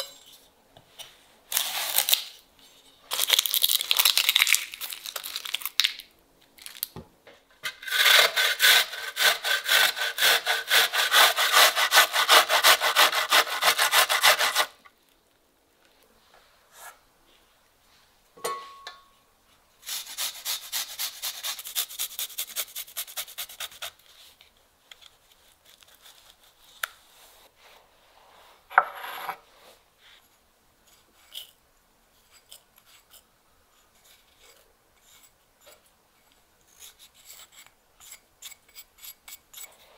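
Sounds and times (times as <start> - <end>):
onion rasping on metal grater: 7.7 - 14.8, 19.8 - 24.0.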